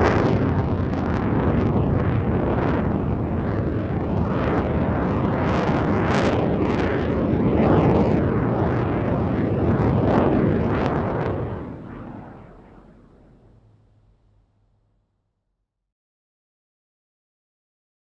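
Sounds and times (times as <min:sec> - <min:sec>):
jet engine roar: 0:00.0 - 0:14.4.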